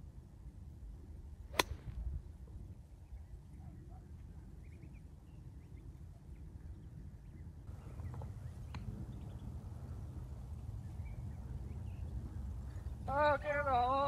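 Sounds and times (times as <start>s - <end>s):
wind rumble on microphone: 0.0s - 14.0s
golf club striking ball: 1.5s - 1.9s.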